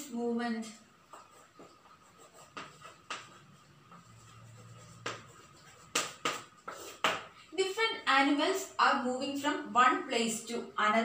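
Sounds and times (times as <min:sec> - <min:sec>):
chalk scratching on blackboard: 0:01.1 - 0:07.3.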